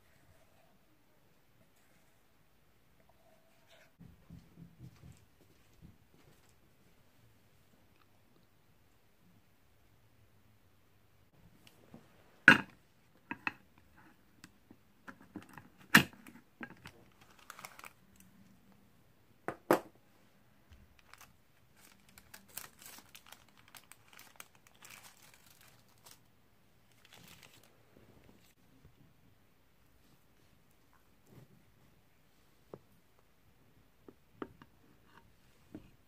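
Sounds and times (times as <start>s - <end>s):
baking parchment crinkling: 15.2s - 18.4s, 20.8s - 28.6s.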